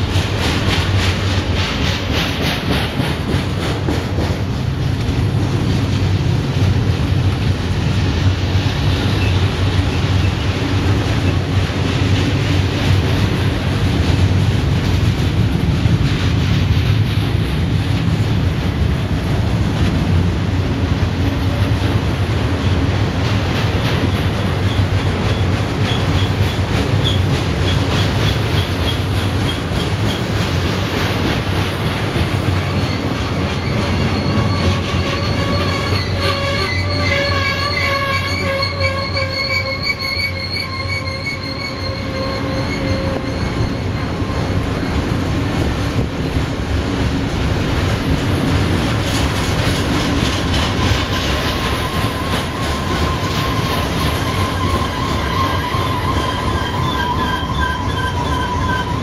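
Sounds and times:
train wheels rumbling on rail: 0.0 - 59.0
wheels squealing: 32.5 - 45.3, 50.1 - 59.0.

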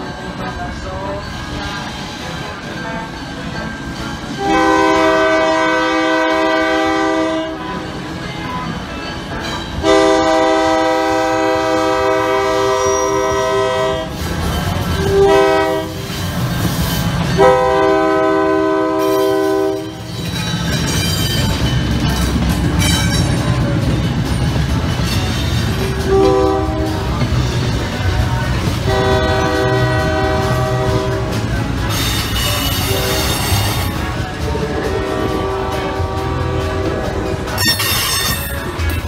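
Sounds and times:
train engine and wheels rumbling: 0.0 - 39.0
locomotive air horn: 4.4 - 8.0, 9.8 - 14.2, 15.0 - 16.2, 17.3 - 20.0, 25.0 - 27.9, 28.7 - 34.2, 34.8 - 38.7.

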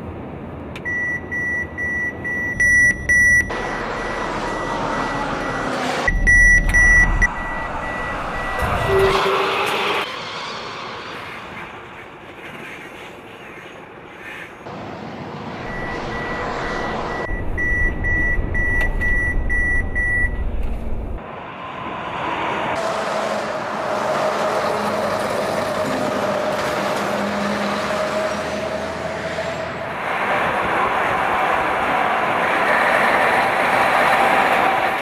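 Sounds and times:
truck engine and road noise: 0.0 - 35.0
high warning beep: 0.8 - 9.6, 15.6 - 20.4.

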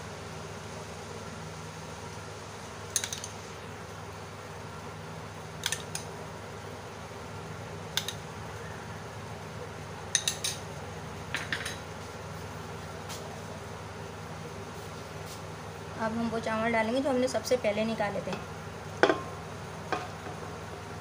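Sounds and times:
steady low hum: 0.0 - 21.0
metal spoon clinking on pot: 10.1 - 10.6.

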